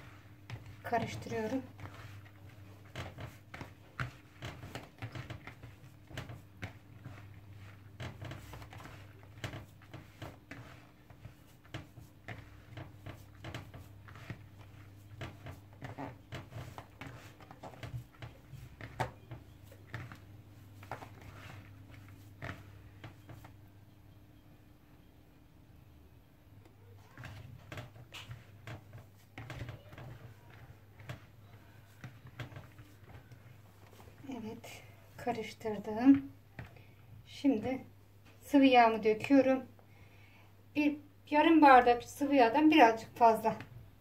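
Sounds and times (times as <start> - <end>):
hands squishing wet grain: 0.0 - 23.5, 27.1 - 35.2.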